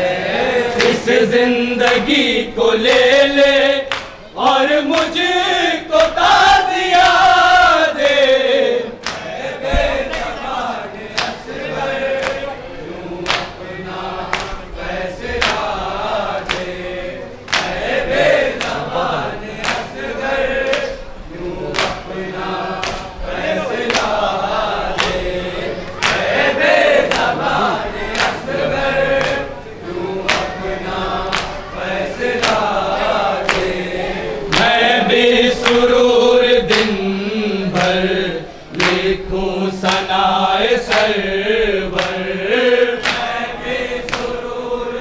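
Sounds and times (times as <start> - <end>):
men chanting in chorus: 0.0 - 45.0.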